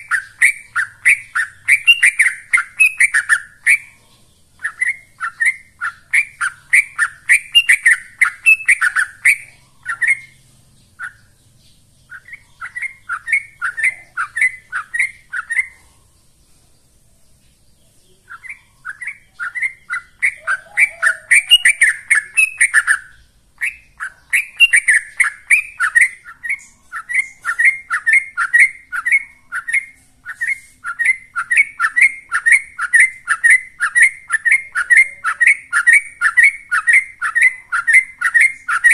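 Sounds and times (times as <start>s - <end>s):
bird singing chattering notes: 0.0s - 38.9s.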